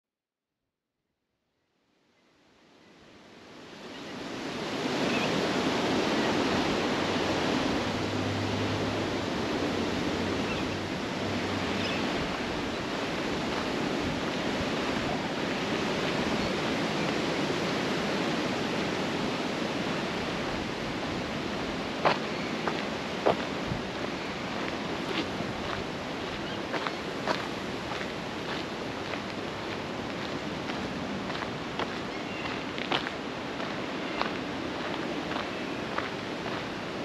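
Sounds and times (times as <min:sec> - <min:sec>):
strong wind rushing: 0:04.6 - 0:31.7.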